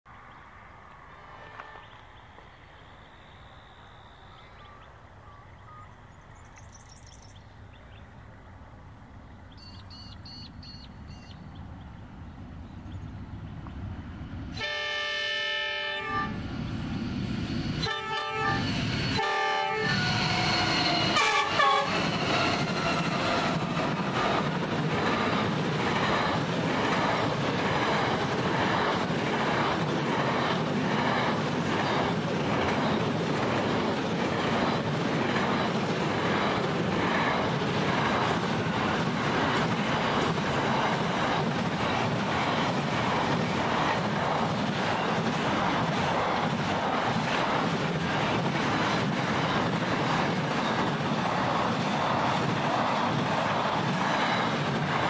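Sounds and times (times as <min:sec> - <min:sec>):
locomotive horn blasts: 0:01.4 - 0:02.0, 0:14.6 - 0:16.4, 0:17.8 - 0:22.1
train wheels clattering over rail joints: 0:20.3 - 0:55.0.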